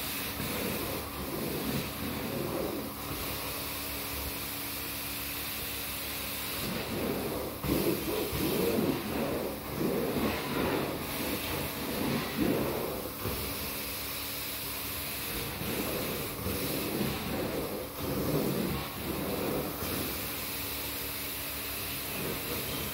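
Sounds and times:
extraction wand sucking water from carpet: 0:00.0 - 0:04.4, 0:06.2 - 0:22.9
vacuum hiss and hum: 0:00.0 - 0:22.9.

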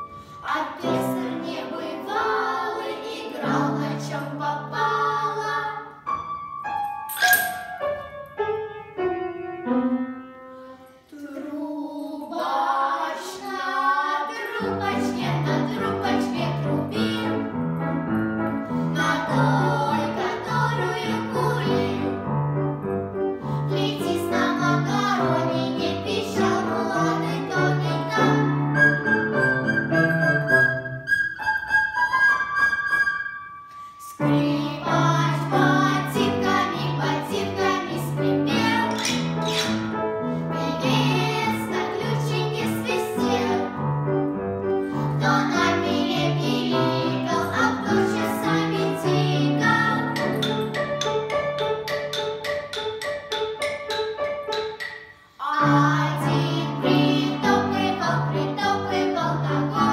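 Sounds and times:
girls singing together: 0:00.4 - 0:06.0, 0:11.0 - 0:17.4, 0:19.0 - 0:22.2, 0:23.7 - 0:28.7, 0:34.0 - 0:39.8, 0:40.6 - 0:43.8, 0:45.1 - 0:50.4, 0:55.3 - 0:59.9.

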